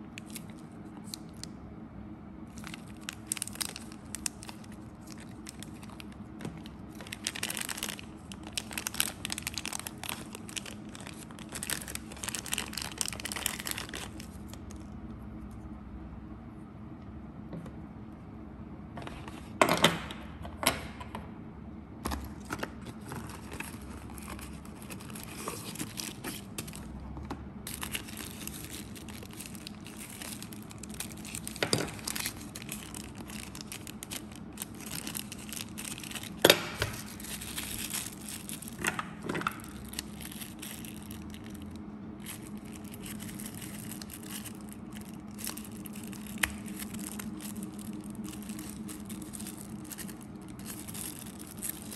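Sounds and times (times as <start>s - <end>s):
wrapping crinkling and tearing: 0.0s - 1.6s, 2.4s - 15.0s, 22.2s - 51.9s
steady low hum: 0.0s - 51.9s.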